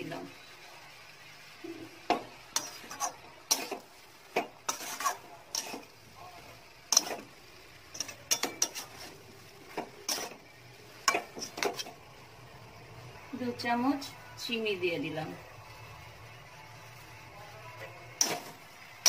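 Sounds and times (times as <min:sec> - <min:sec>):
metal spatula scraping a pan: 0:01.7 - 0:12.0, 0:17.8 - 0:18.8.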